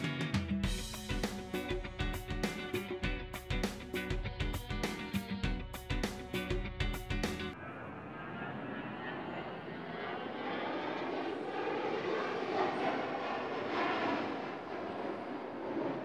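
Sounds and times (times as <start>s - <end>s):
guitar music: 0.0s - 7.6s
jet engines in flight: 7.5s - 16.0s.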